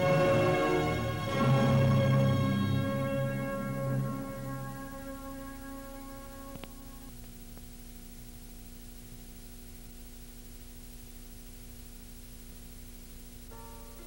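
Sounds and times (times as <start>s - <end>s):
held music chord: 0.0s - 7.1s
low hum: 0.0s - 9.4s
steady hiss: 0.0s - 14.0s.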